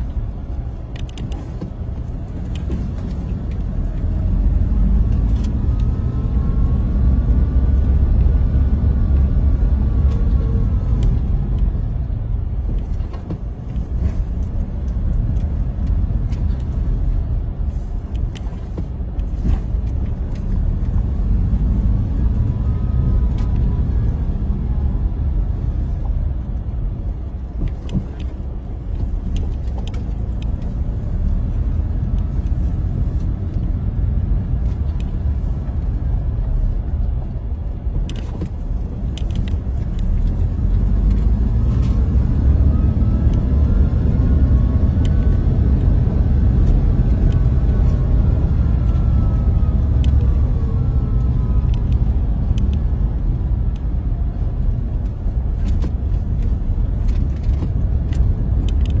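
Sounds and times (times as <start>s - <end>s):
car engine and tyres rumbling: 0.0s - 59.0s.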